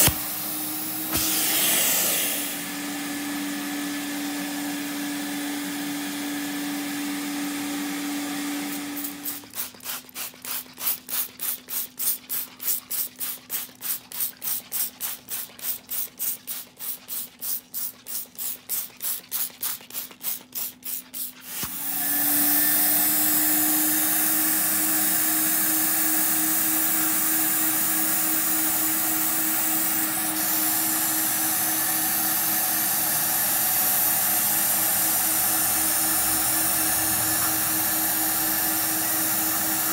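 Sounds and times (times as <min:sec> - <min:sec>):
spray bottle squirting: 0:00.0 - 0:02.6, 0:09.0 - 0:22.0
vacuum suction hiss: 0:00.0 - 0:05.6, 0:21.5 - 0:39.9
extractor motor humming: 0:34.9 - 0:39.9.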